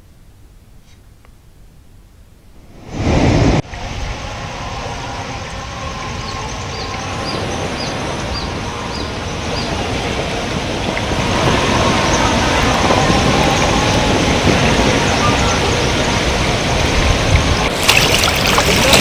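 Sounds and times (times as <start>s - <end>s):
fast-flowing river rushing: 6.2s - 19.0s.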